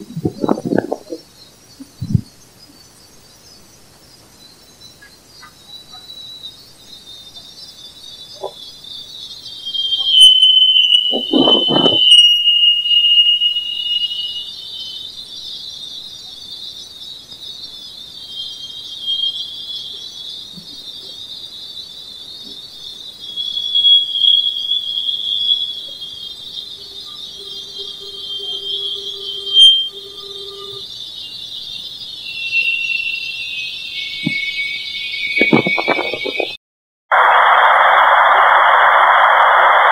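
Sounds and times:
thin wandering whistle: 0:00.0 - 0:36.6
high-pitched hiss: 0:00.0 - 0:39.9
faint high tone: 0:26.8 - 0:30.8.

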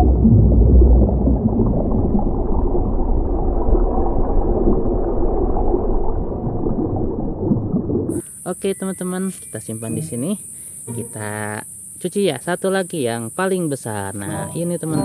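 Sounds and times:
deep muffled rumble: 0:00.0 - 0:08.2
underwater bubbling and gurgling: 0:00.0 - 0:08.2.

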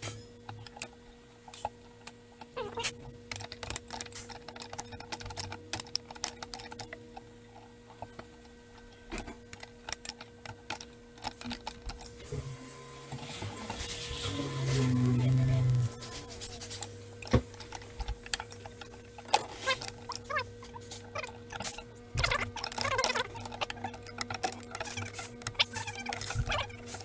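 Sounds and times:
faint steady hum: 0:00.0 - 0:27.0.

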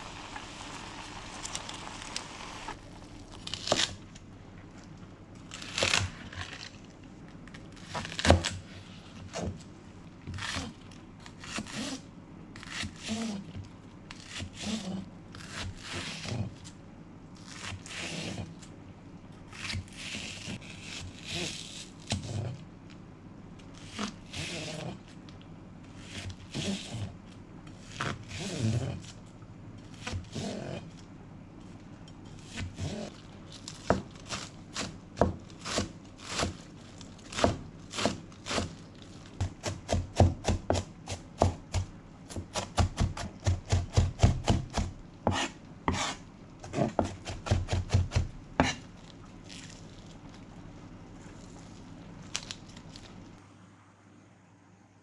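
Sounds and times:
knife slicing onions on board: 0:33.8 - 0:36.7, 0:37.3 - 0:38.8, 0:39.4 - 0:48.9
knife chopping on board: 0:39.4 - 0:48.8.

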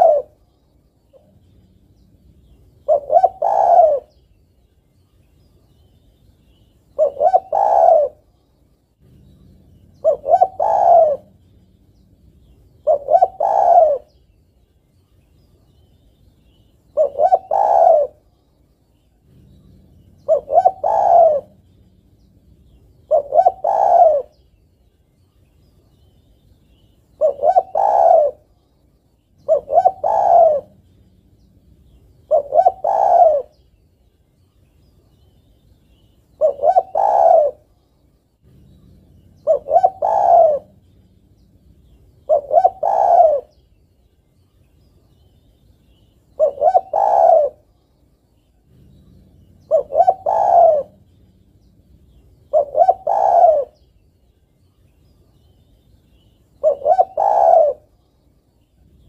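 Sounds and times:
dove cooing: 0:00.0 - 0:00.4, 0:01.1 - 0:04.3, 0:06.5 - 0:08.4, 0:09.0 - 0:14.2, 0:16.5 - 0:18.4, 0:19.2 - 0:24.5, 0:27.1 - 0:28.6, 0:29.3 - 0:33.7, 0:35.4 - 0:37.8, 0:38.4 - 0:43.7, 0:45.9 - 0:47.8, 0:48.6 - 0:54.0, 0:56.1 - 0:58.0.

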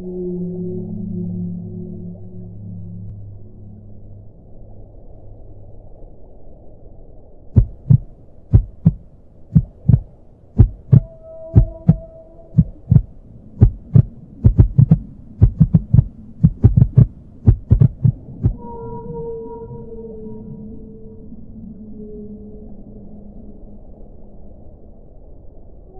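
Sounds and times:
low electronic hum: 0:00.0 - 0:25.9
deep heartbeat-like thuds: 0:07.6 - 0:18.6
faint held tones: 0:10.6 - 0:16.0.

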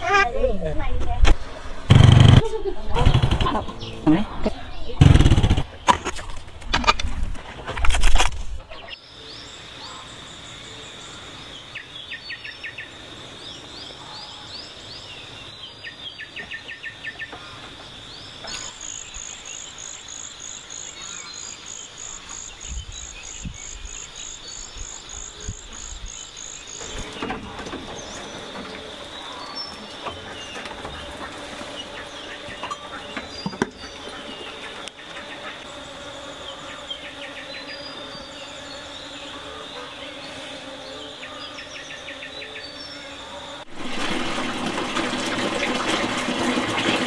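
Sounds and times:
birds chirping: 0:00.0 - 0:06.6, 0:08.6 - 0:43.7
loud thump: 0:01.2 - 0:03.8
high insect drone: 0:08.9 - 0:16.0, 0:16.6 - 0:43.7.

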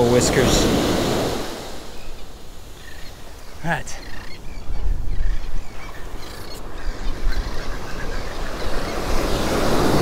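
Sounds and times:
ocean surf: 0:00.0 - 0:04.2, 0:06.6 - 0:10.0
wind buffeting microphone: 0:04.2 - 0:10.0.

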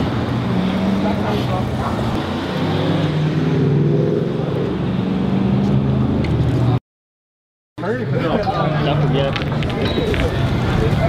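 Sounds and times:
voices: 0:07.8 - 0:11.0.

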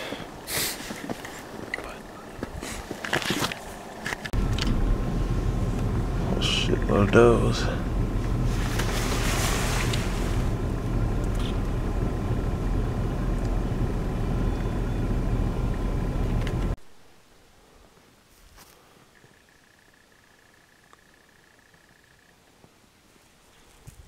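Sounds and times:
vehicle engine and road noise: 0:00.0 - 0:16.8.

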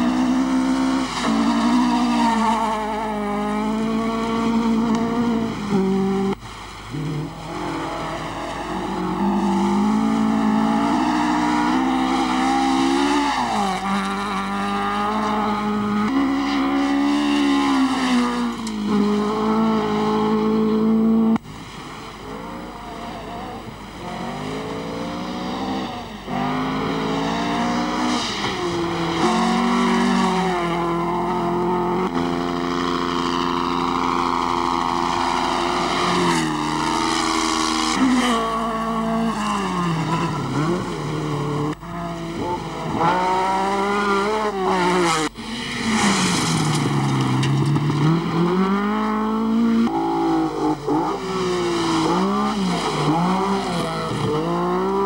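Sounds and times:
rally car engines revving: 0:00.0 - 0:55.0.

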